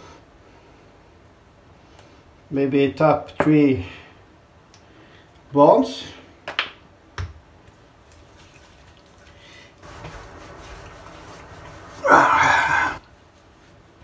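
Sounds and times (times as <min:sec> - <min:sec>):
hands rubbing skin: 0:08.1 - 0:12.3.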